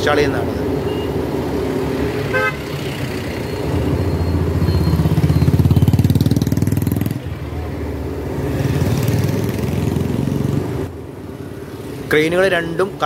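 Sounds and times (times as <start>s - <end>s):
motorcycle engine passing: 1.1s - 11.0s
vehicle horn toot: 2.3s - 2.8s.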